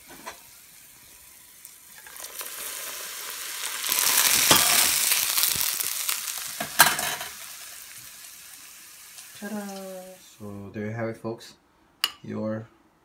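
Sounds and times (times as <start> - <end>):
hot oil sizzling: 0.0 - 10.5
oil popping: 3.6 - 7.0.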